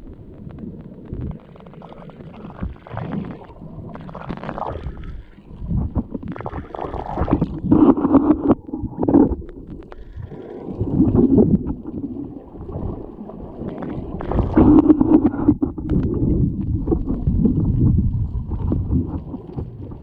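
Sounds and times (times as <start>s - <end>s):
underwater sloshing and gurgling: 0.0s - 20.0s
bubble clicks: 13.7s - 19.8s.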